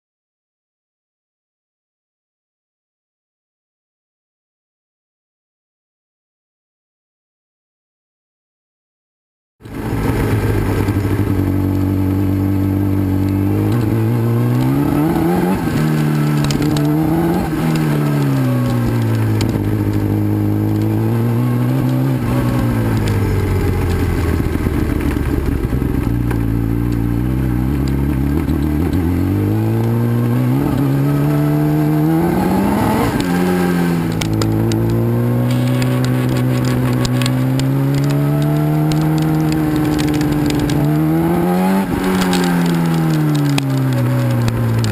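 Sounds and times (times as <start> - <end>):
gravel crackling under tyres: 9.6 - 44.9
motorcycle engine revving: 9.6 - 44.9.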